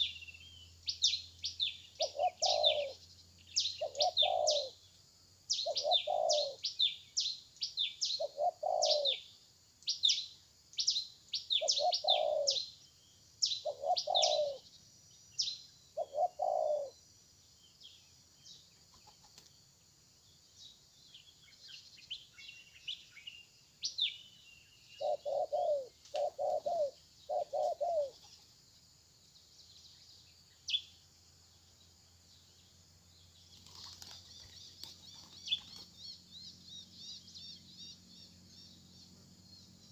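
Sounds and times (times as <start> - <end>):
small birds chirping: 0.0 - 39.9
dove cooing: 2.0 - 3.0, 3.7 - 4.8, 5.6 - 6.7, 8.2 - 9.2, 11.5 - 12.6, 13.6 - 14.6, 16.0 - 16.9, 25.0 - 28.3.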